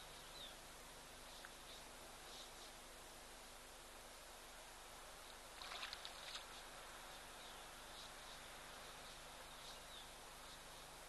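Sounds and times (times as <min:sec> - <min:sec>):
distant birds chirping: 0:00.0 - 0:04.4, 0:05.1 - 0:11.0
faint steady hiss: 0:00.0 - 0:11.0
soft splash: 0:05.6 - 0:06.5.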